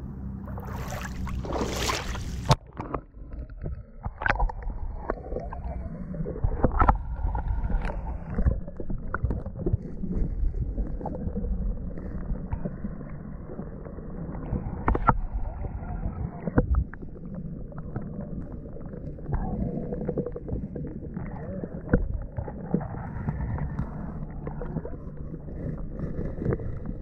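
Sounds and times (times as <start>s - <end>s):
muffled underwater rumbling: 0.0s - 27.0s
water splashing at surface: 0.5s - 5.8s
underwater clicks and knocks: 1.2s - 10.1s, 14.4s - 27.0s.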